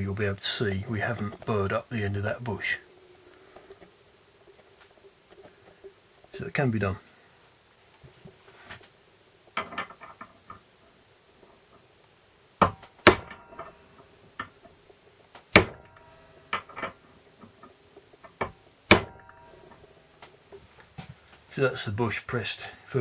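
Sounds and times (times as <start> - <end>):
hammer striking metal drift: 18.9 - 20.0.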